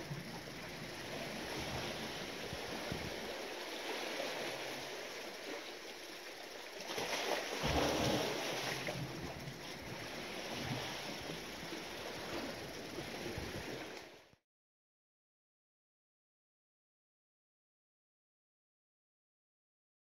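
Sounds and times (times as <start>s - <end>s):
sea waves washing: 0.0s - 14.2s
wind buffeting microphone: 1.4s - 3.4s.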